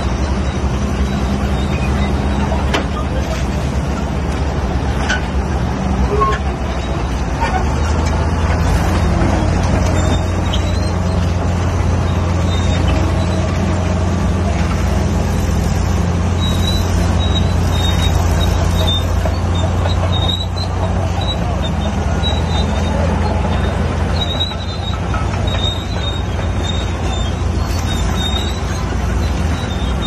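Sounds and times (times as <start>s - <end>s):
bulldozer engine drone: 0.0s - 30.0s.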